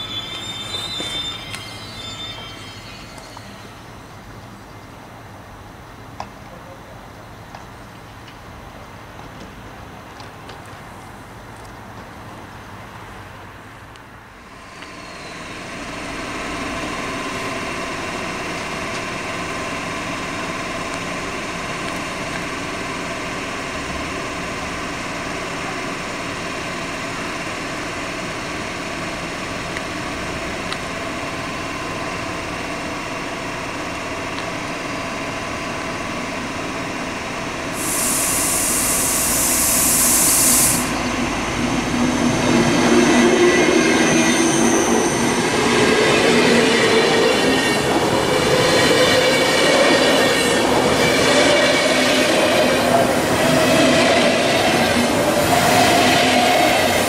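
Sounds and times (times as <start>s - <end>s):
electric locomotive humming: 0.0s - 6.3s, 13.9s - 57.0s
train arriving: 0.0s - 57.0s
loud hiss: 37.7s - 41.5s.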